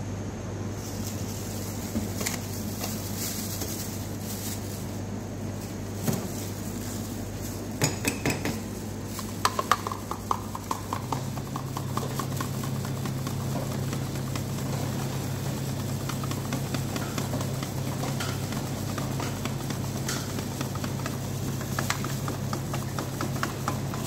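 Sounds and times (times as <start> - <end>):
plastic cup knocking and clinking: 7.8 - 8.7, 9.3 - 12.5.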